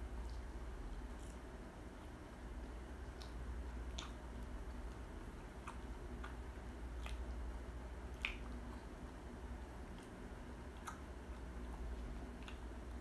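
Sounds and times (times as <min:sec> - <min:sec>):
steady low hum: 0:00.0 - 0:13.0
chewing mouth sounds: 0:02.0 - 0:13.0.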